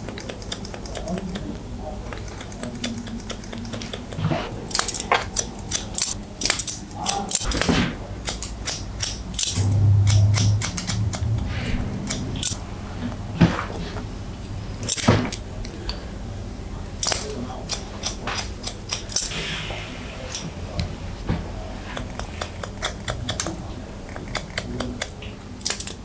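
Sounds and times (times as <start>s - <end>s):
scissors snipping hair: 0.0s - 7.6s, 8.2s - 11.2s, 17.0s - 19.3s, 22.0s - 26.0s
brief low hum: 9.3s - 14.4s.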